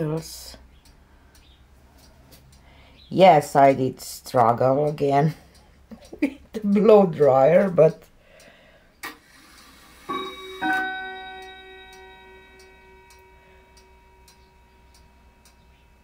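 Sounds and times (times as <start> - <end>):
faint steady ticking: 0.0 - 16.0
chime ringing: 10.1 - 16.0.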